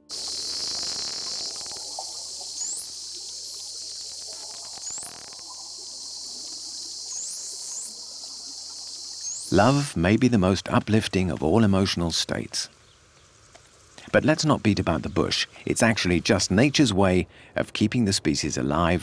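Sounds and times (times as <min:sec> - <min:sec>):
steady high hiss: 0:00.0 - 0:16.9
dolphin whistles: 0:00.2 - 0:05.6, 0:07.0 - 0:08.1, 0:09.0 - 0:09.8.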